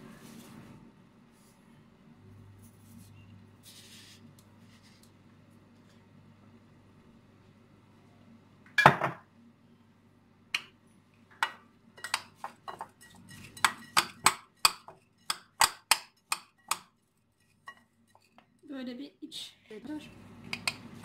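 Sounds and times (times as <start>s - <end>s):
spoon clinking against ceramic bowl: 11.4s - 16.8s.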